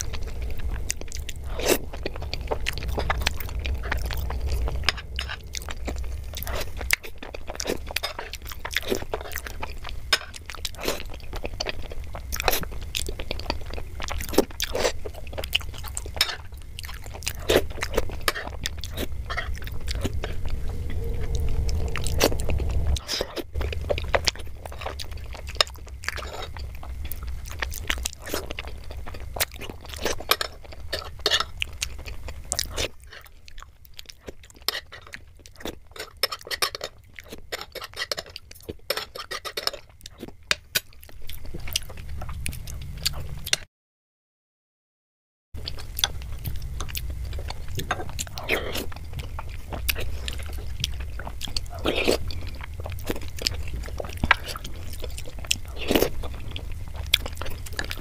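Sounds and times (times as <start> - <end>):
steady low hum: 0.0 - 32.8, 45.6 - 58.0
wet chewing and slurping: 0.0 - 43.6, 45.6 - 58.0.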